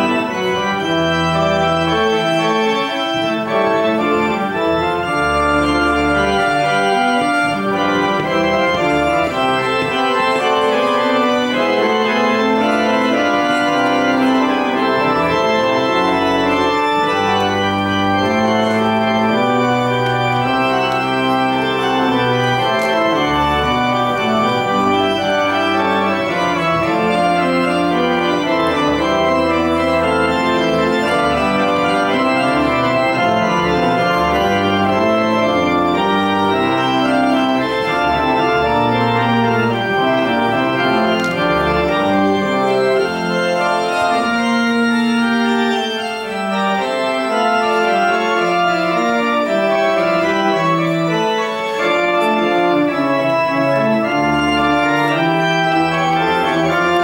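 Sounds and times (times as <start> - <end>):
church organ playing: 0.0 - 57.0.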